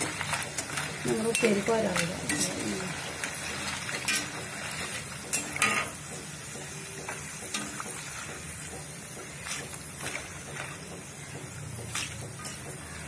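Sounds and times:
metal strainer scraping pan: 0.0s - 6.0s
food sizzling in hot oil: 0.0s - 13.0s.

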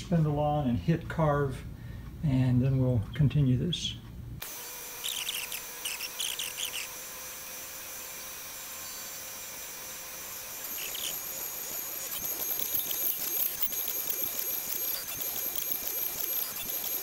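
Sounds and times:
router spindle high whine: 4.4s - 17.0s
scratchy wood cutting noises: 4.4s - 17.0s.

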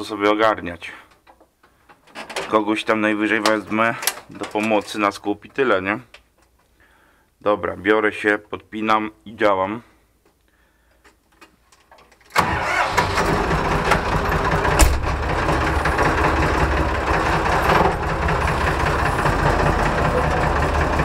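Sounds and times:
tractor engine starting and running: 12.3s - 21.0s.

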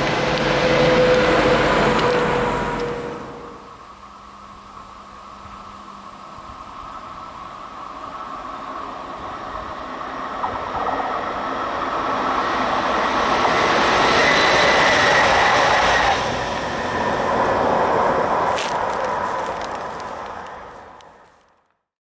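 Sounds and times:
thin high whine: 0.0s - 8.5s
train wheels rolling on track: 0.0s - 21.7s.

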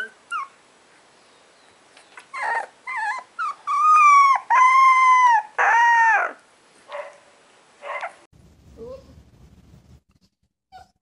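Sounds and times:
faint puppy whimper: 0.0s - 0.6s, 2.2s - 6.3s, 10.7s - 11.0s
puppy howling and yipping: 0.0s - 0.6s, 2.3s - 6.4s.

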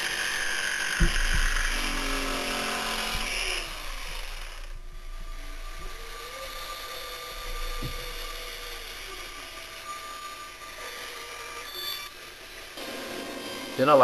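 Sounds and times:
electric jigsaw cutting wood: 0.0s - 14.0s
sharp knock: 1.0s - 1.6s
quiet steady hum: 1.0s - 13.6s.

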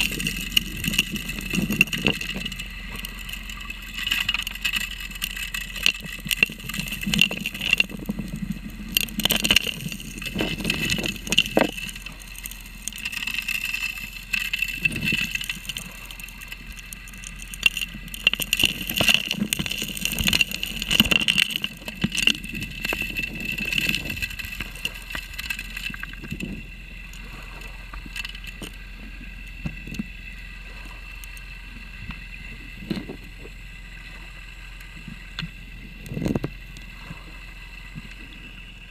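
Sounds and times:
stones clattering into suction nozzle: 0.0s - 26.5s
dredge drone: 0.0s - 38.9s.

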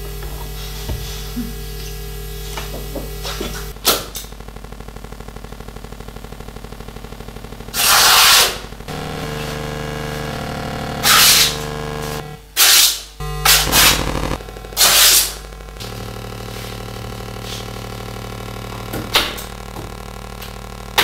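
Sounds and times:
electronic drone: 4.9s - 21.0s
bursts of hissing noise: 7.7s - 20.0s.

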